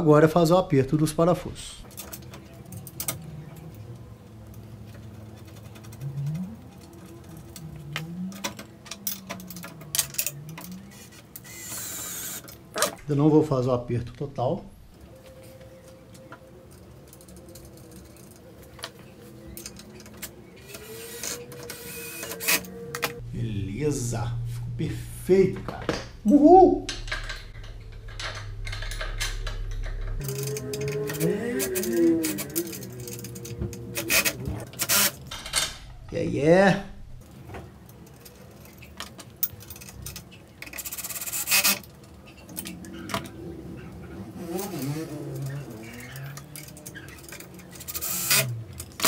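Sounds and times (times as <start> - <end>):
metal parts clicking and knocking: 4.4 - 13.0, 15.2 - 23.2, 26.8 - 36.2, 37.2 - 43.4, 44.5 - 49.0
faint steady hum: 6.0 - 44.4.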